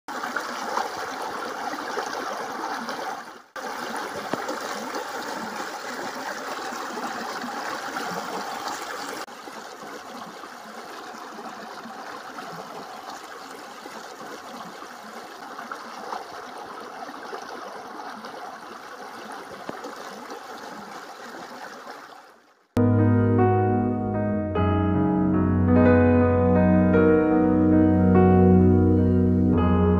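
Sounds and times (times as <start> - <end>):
water flowing over sand: 0.1 - 22.6.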